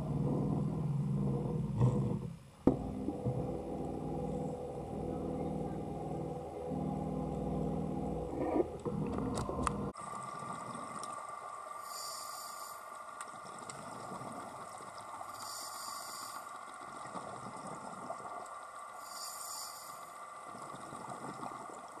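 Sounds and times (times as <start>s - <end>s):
exhaled bubbles rumbling: 0.0s - 11.8s, 13.1s - 15.6s, 16.2s - 19.0s, 20.3s - 22.0s
regulator inhale hiss: 11.8s - 13.0s, 15.3s - 16.6s, 19.0s - 20.3s.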